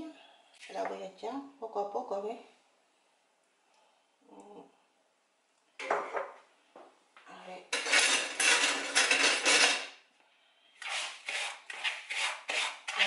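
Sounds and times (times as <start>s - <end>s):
utensils clattering on dishes: 7.7s - 10.0s.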